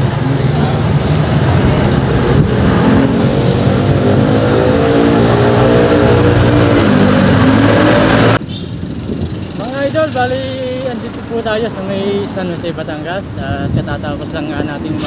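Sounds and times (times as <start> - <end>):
road and wind noise: 0.0 - 15.0
vehicle engine running: 8.3 - 12.2.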